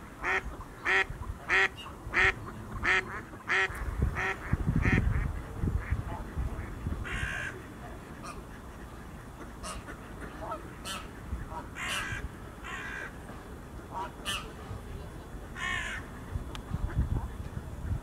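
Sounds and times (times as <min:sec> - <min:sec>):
birds calling: 0:06.6 - 0:17.2.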